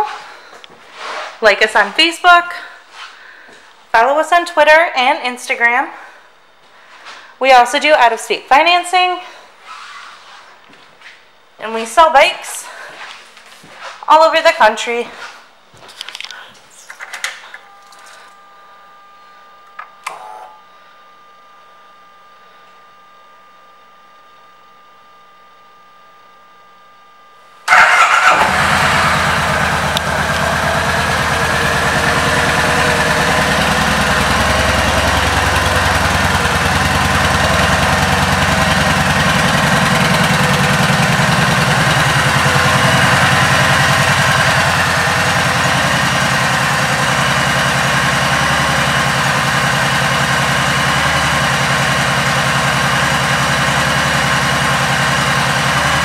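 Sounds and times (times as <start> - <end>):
motorcycle engine starting and idling: 27.7 - 56.0.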